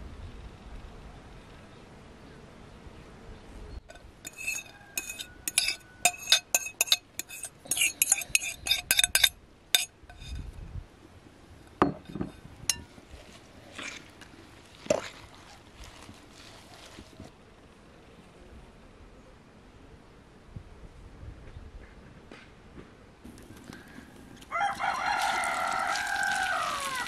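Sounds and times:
fork clinking against glass bowl: 3.9s - 10.4s, 11.8s - 12.9s
soft stirring: 3.9s - 10.4s, 11.6s - 17.3s, 23.3s - 27.0s.

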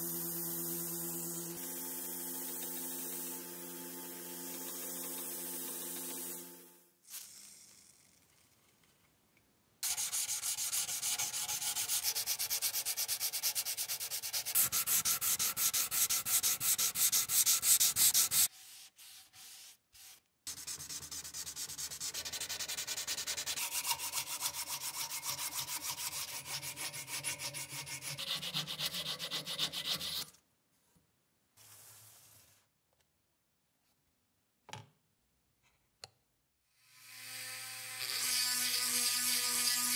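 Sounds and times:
sanding a steel blade: 9.8s - 19.8s, 20.5s - 30.3s, 37.9s - 39.9s.

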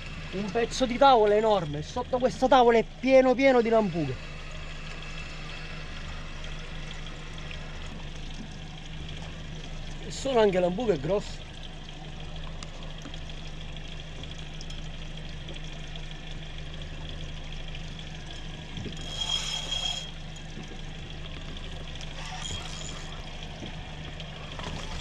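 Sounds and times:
steady low hum: 0.0s - 25.0s
water sloshing and splashing: 0.0s - 25.0s
high-pitched whirr: 18.8s - 20.7s, 22.1s - 23.8s, 24.4s - 25.0s.

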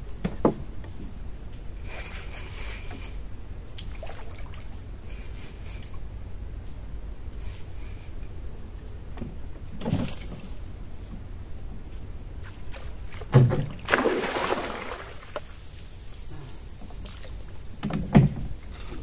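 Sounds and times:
fish splashing in water: 13.5s - 15.5s.

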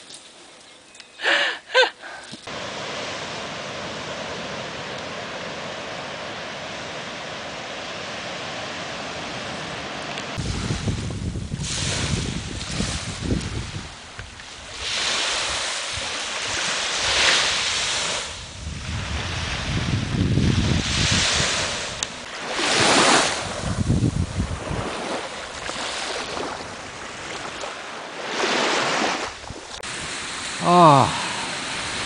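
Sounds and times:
small waves washing onto sand: 2.4s - 32.0s
wind gusting across microphone: 2.5s - 27.7s.

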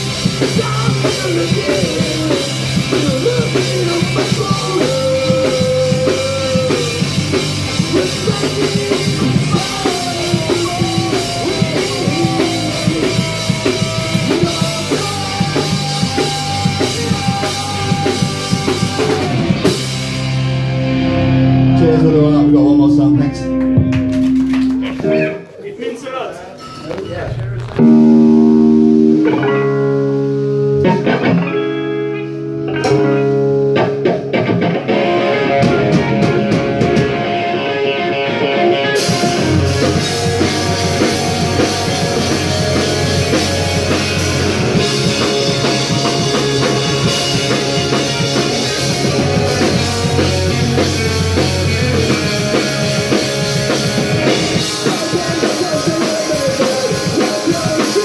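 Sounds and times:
electric guitar chords: 0.0s - 25.6s, 26.9s - 58.0s
punk rock band playing live: 0.0s - 25.6s, 26.6s - 58.0s
drums: 0.0s - 58.0s.

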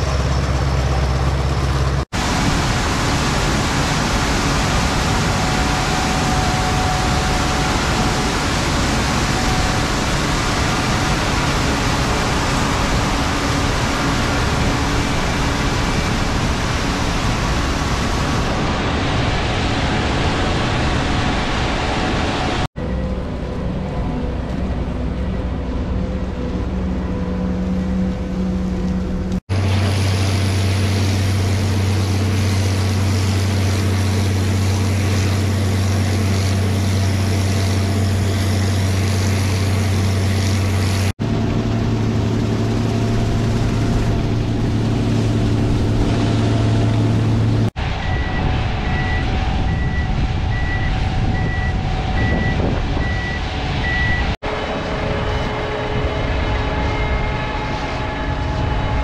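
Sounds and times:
combine harvester drone: 0.0s - 59.0s
high warning beeps: 48.0s - 54.4s.

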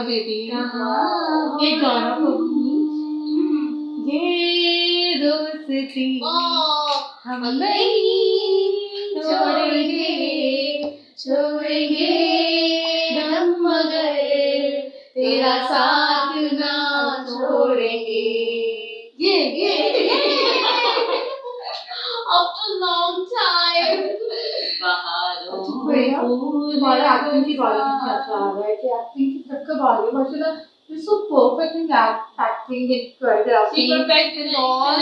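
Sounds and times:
women singing together: 0.0s - 6.2s, 6.9s - 21.5s, 25.4s - 27.6s.

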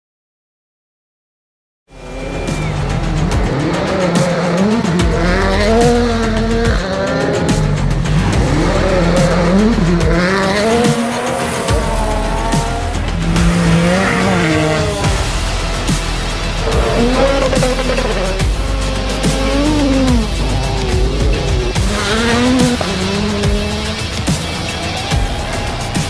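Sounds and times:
music: 1.9s - 26.0s
rally car engine at full throttle: 1.9s - 26.0s.

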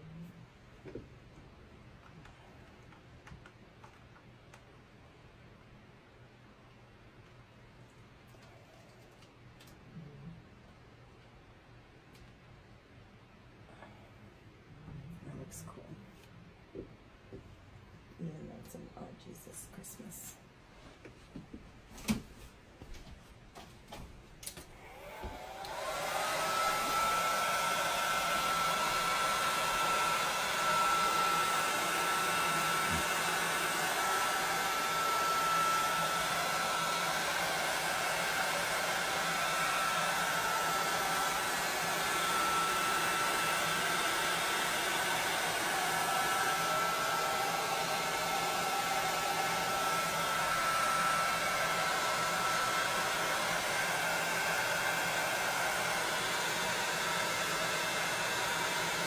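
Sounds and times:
heat gun blowing air: 24.7s - 59.0s.

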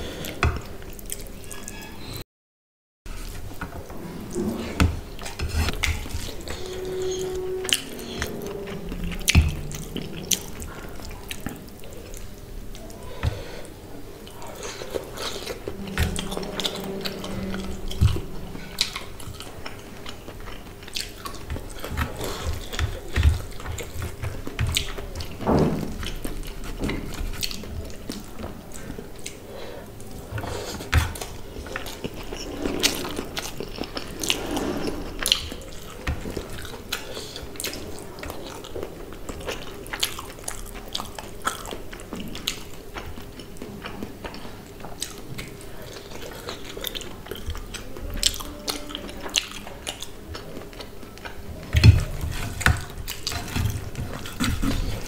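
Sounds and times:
chewing and mouth smacks: 5.2s - 13.0s, 14.2s - 25.4s, 26.0s - 29.4s, 35.2s - 55.0s.

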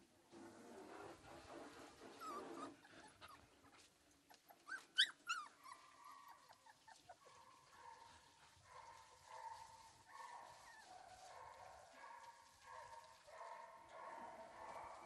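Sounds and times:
dogs whining: 2.2s - 3.4s, 4.5s - 7.2s
dogs yelping: 4.5s - 7.6s.

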